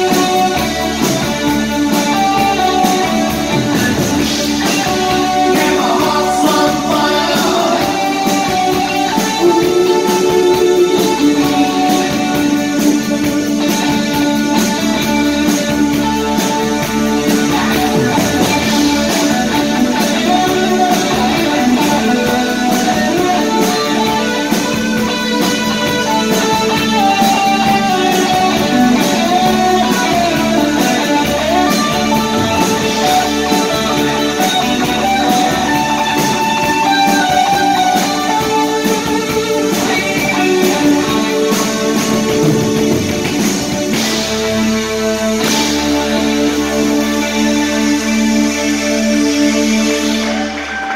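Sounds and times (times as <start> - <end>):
drum beat: 0.0 - 44.7
bass guitar: 0.0 - 50.9
electric guitar: 0.0 - 50.9.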